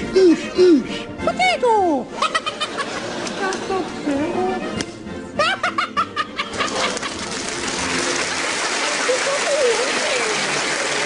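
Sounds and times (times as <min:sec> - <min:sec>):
studio audience applause: 0:06.5 - 0:11.0.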